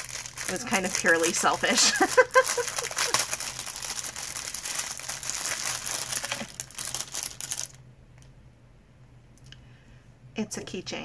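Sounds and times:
plastic packaging crinkling: 0.0 - 7.8.

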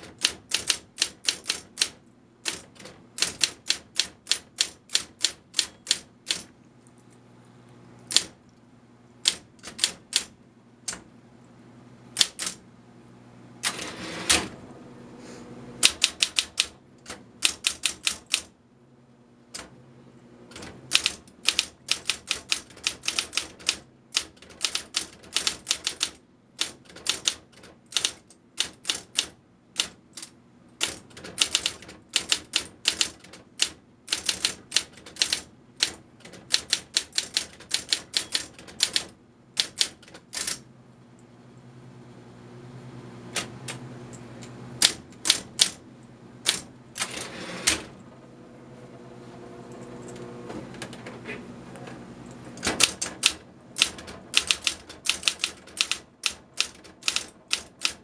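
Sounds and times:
typewriter key strikes: 0.0 - 6.5, 9.3 - 10.3, 20.5 - 40.6, 52.6 - 58.0
typewriter mechanical noise: 0.0 - 6.5, 8.1 - 8.4, 9.2 - 11.0, 12.2 - 12.6, 13.6 - 14.6, 15.8 - 18.6, 20.5 - 40.6, 44.8 - 45.8, 46.4 - 48.0, 52.6 - 58.0
typewriter motor humming: 0.0 - 6.5, 8.1 - 8.4, 9.2 - 10.3, 12.2 - 12.6, 13.6 - 14.6, 15.8 - 18.5, 20.5 - 40.6, 44.8 - 45.8, 46.4 - 48.0, 52.6 - 58.0.

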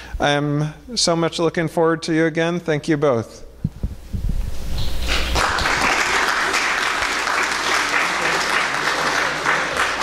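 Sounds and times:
audience applauding: 5.2 - 10.0.

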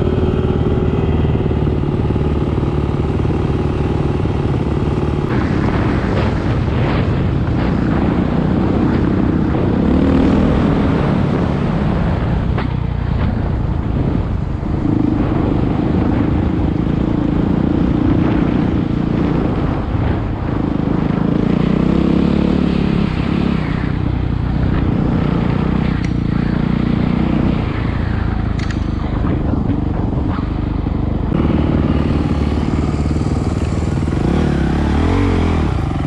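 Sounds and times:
dirt bike engine revving: 31.3 - 36.0.

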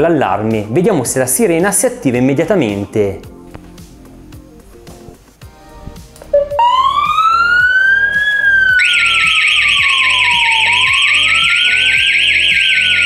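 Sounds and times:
slow wailing alarm siren: 6.3 - 13.0
fast warbling siren: 6.4 - 13.0.

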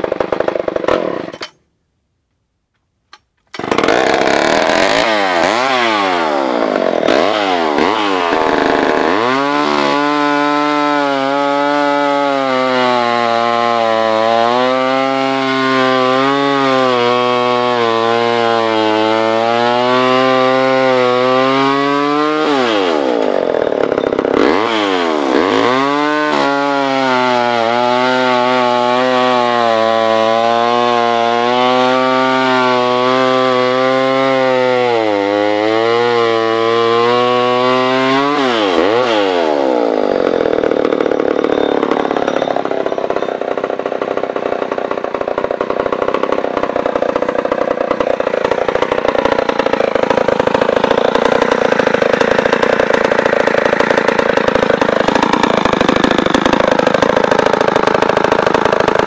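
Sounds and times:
chainsaw cutting log: 0.0 - 1.6, 3.2 - 59.0.

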